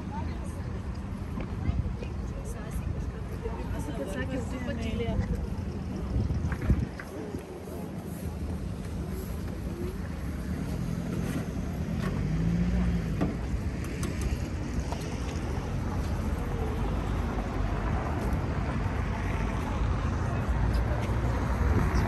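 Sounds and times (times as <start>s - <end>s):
faint voices: 0.0s - 22.0s
traffic rumble: 0.0s - 22.0s
wind on microphone: 4.3s - 10.3s, 13.2s - 22.0s.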